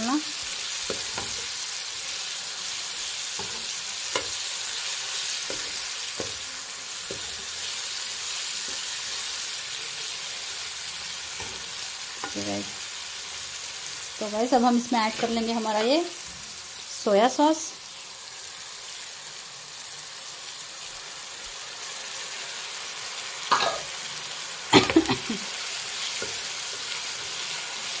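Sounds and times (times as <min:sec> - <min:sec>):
food sizzling in oil: 0:00.0 - 0:28.0
metal spoon scraping a pan: 0:00.4 - 0:01.6, 0:03.0 - 0:07.8, 0:11.3 - 0:12.6, 0:15.0 - 0:16.1.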